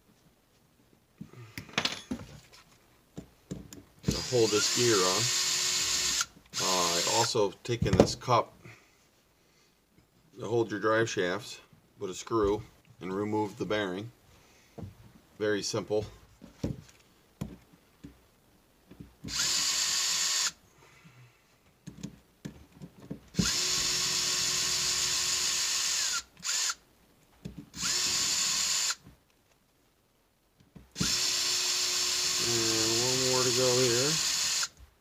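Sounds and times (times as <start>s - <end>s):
electric driver whirring: 4.0s - 7.3s, 19.3s - 20.6s, 23.4s - 26.8s, 27.8s - 29.0s, 31.0s - 34.8s.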